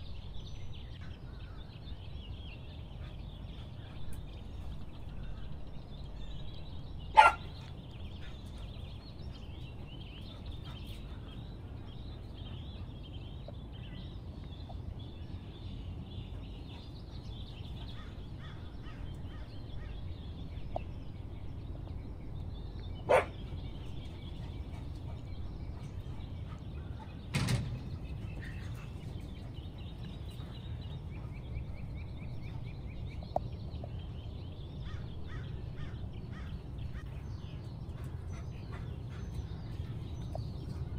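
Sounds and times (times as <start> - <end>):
small birds chirping: 0.0 - 40.9.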